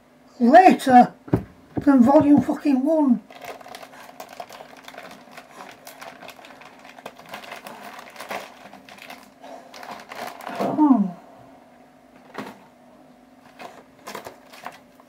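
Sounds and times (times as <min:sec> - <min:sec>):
faint steady hum: 0:00.0 - 0:15.0
packaging rustling and crinkling: 0:03.2 - 0:10.8, 0:13.4 - 0:15.0.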